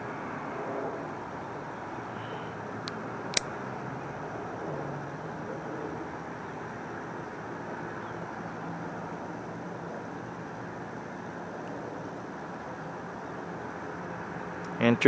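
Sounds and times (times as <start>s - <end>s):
distant urban rumble: 0.0s - 15.0s.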